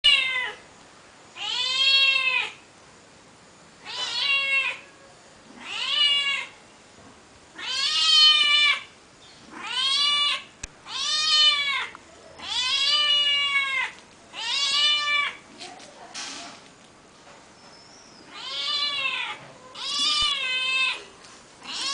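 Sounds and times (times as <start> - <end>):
cat meowing: 0.0 - 0.6, 1.4 - 2.6, 3.8 - 4.9, 5.6 - 6.6, 7.6 - 8.9, 9.5 - 15.4, 18.3 - 21.9.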